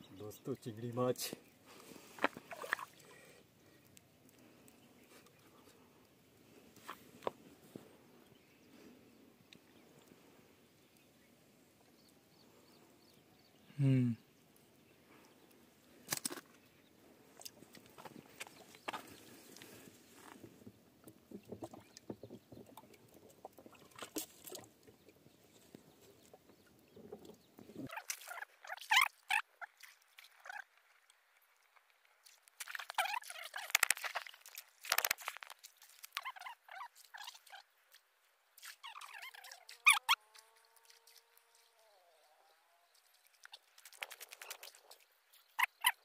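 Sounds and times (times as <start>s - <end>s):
water splashing and sloshing: 0.5s - 5.8s, 15.9s - 46.0s.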